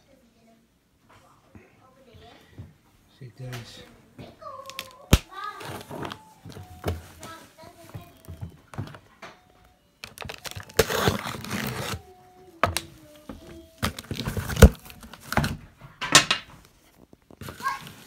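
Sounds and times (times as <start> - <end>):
packing tape ripping: 4.6 - 6.2, 10.0 - 12.1, 13.8 - 15.6.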